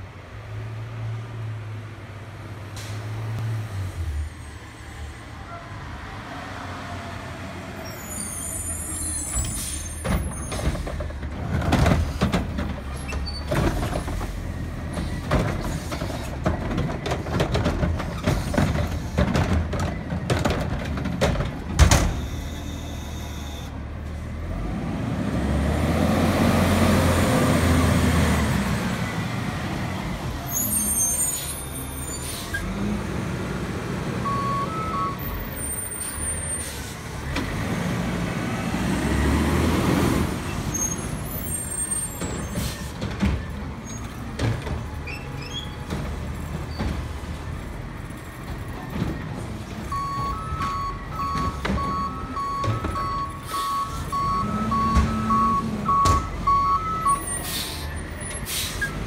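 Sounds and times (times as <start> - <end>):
garbage truck diesel engine: 0.0 - 59.0
cart knocking and banging: 10.0 - 22.3, 42.1 - 47.4
air brake hiss: 57.4 - 58.9.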